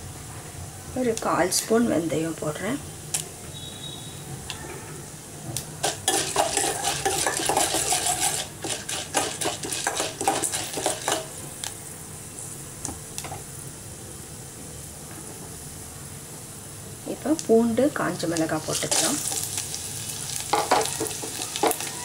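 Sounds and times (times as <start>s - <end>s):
oil sizzling: 1.0s - 22.0s
spoon stirring and scraping pot: 5.8s - 11.4s, 20.5s - 22.0s.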